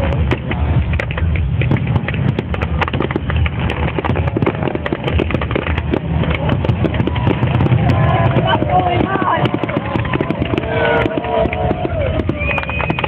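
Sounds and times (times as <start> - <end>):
fireworks popping and banging: 0.0 - 13.0
low rumble: 0.0 - 13.0.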